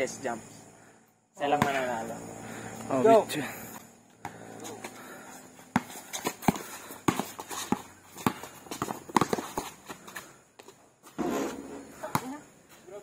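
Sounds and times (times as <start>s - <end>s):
basketball bouncing on concrete: 1.5s - 1.9s, 4.2s - 4.9s, 5.6s - 12.4s.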